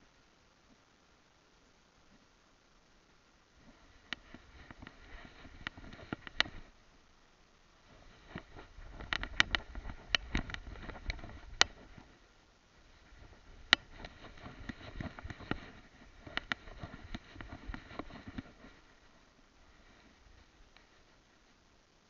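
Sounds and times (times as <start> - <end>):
rustling through long grass: 3.6 - 6.8, 7.8 - 21.7
camera rubbing and knocking: 3.7 - 6.8, 7.9 - 12.2, 12.8 - 19.0.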